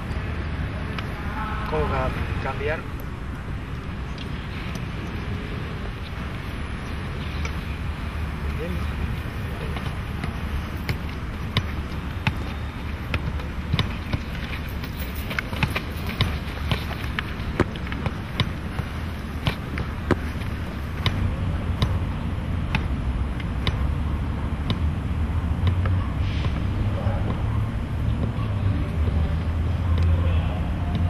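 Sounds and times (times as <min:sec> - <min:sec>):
foot tapping football: 0:08.6 - 0:23.9, 0:24.5 - 0:31.0.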